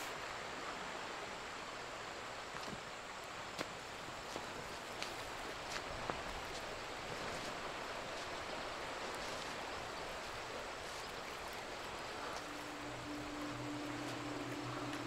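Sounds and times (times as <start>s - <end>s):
flowing river water: 0.0s - 15.0s
low steady hum: 7.8s - 15.0s.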